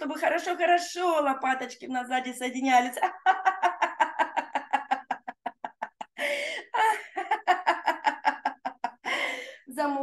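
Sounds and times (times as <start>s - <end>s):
woman laughing: 2.9s - 9.5s
woman gasping: 6.2s - 7.1s, 9.0s - 9.7s.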